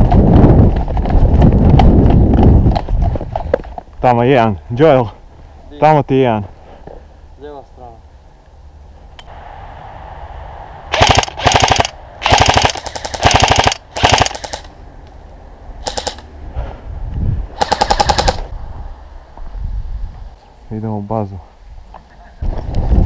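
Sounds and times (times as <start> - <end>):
airsoft gun full-auto bursts: 10.9 - 14.7, 15.8 - 16.2, 17.6 - 18.5.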